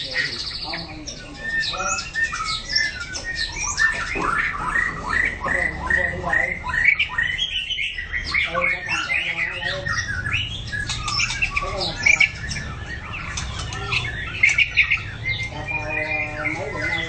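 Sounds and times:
bird singing varied song: 0.0s - 17.0s
sharp clicking bird notes: 1.6s - 5.7s, 9.8s - 15.5s.

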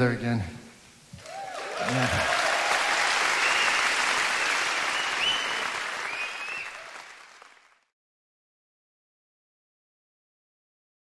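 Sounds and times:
concert audience applauding: 1.2s - 7.9s.

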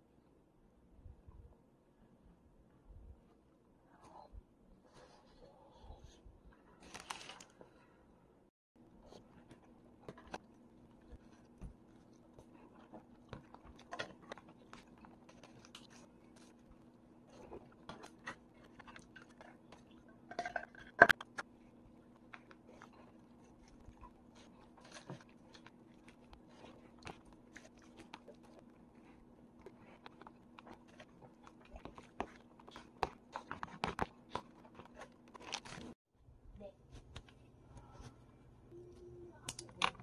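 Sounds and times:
person chewing: 22.0s - 35.9s.

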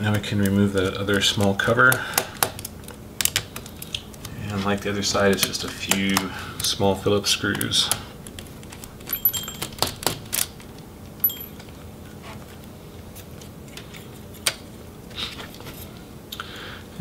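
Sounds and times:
ringing metal tick: 9.1s - 9.9s, 11.2s - 11.6s.

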